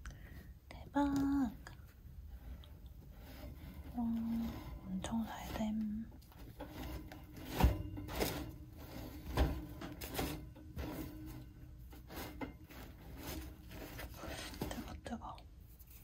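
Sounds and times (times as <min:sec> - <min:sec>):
bread crust crackling: 0:12.0 - 0:14.8.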